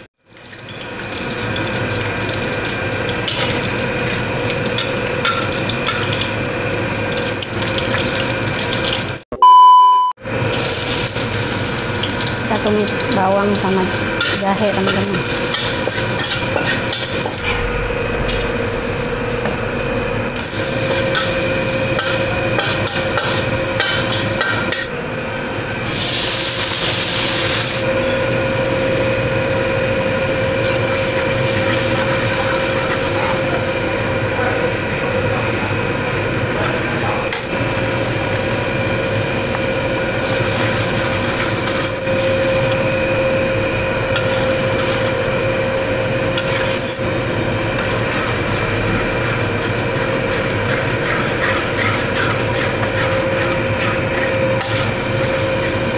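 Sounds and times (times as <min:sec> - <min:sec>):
steady hum: 0:09.3 - 0:55.9
food sizzling in a wok: 0:10.4 - 0:17.6, 0:18.3 - 0:25.0, 0:25.8 - 0:35.3, 0:37.5 - 0:55.9
metal spatula scraping a wok: 0:49.0 - 0:55.0.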